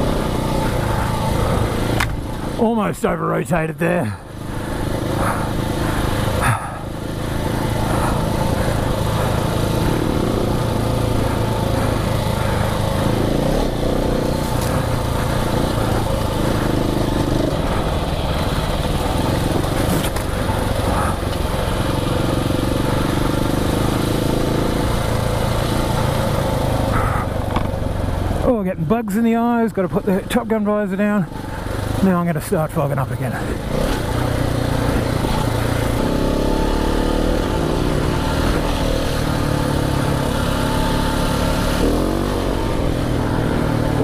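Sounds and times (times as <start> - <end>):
motorcycle engine under throttle: 0.0 - 44.0.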